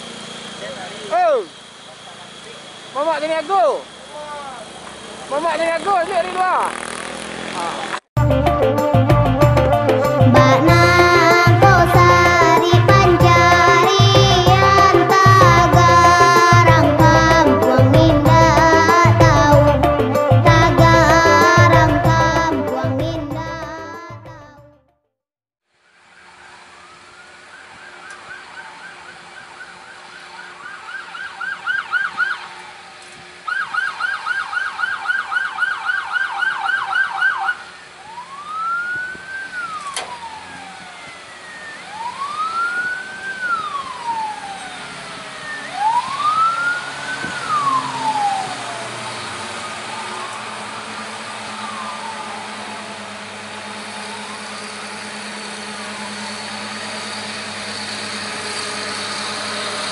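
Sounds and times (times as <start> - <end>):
heavy vehicle engine running: 0.0 - 24.5, 39.2 - 59.9
ambulance siren: 26.0 - 59.9.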